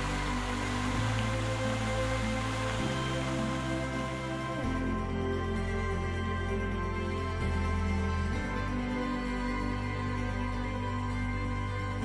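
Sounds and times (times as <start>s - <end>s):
slow sustained music chords: 0.0s - 12.0s.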